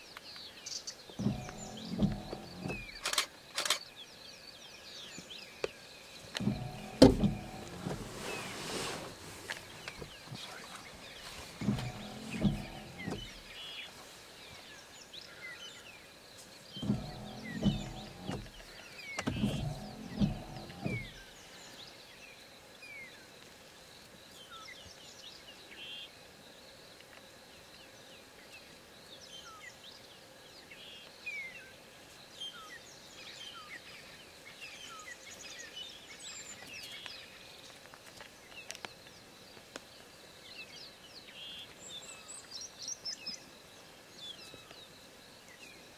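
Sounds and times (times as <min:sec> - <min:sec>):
small birds chirping: 0:00.0 - 0:03.1, 0:03.8 - 0:23.2.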